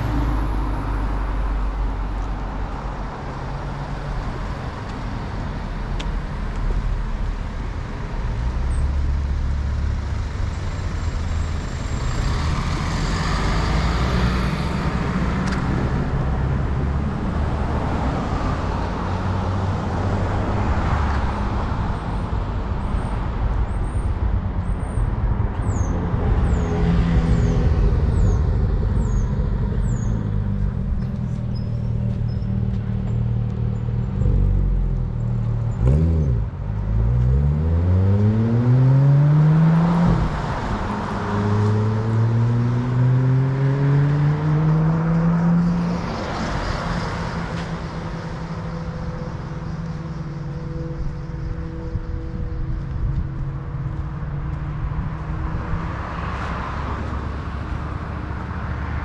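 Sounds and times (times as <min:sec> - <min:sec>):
road traffic rumble: 0:00.0 - 0:59.0.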